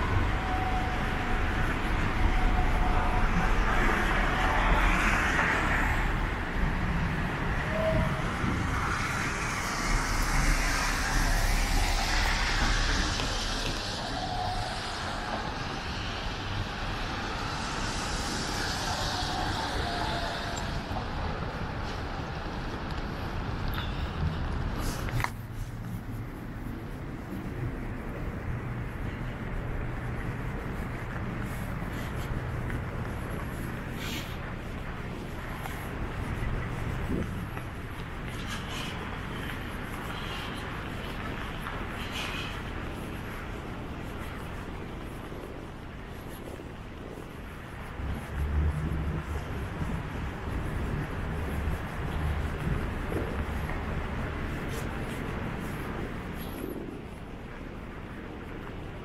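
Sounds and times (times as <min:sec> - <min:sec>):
cars passing: 0:00.0 - 0:59.0
traffic rumble: 0:00.0 - 0:59.0.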